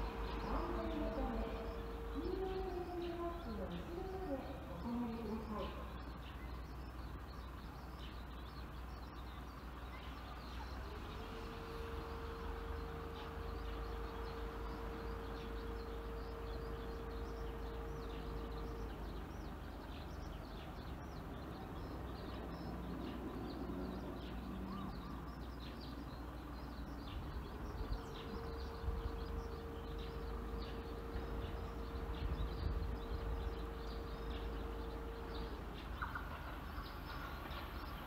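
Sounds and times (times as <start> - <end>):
bird chirps: 0.0 - 38.0
faint steady hum: 0.0 - 38.0
low steady rumble: 0.0 - 38.0.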